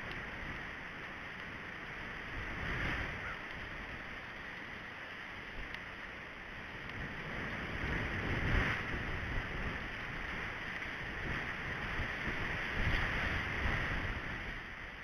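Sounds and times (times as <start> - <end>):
wind on microphone: 2.0 - 4.1, 6.6 - 15.0.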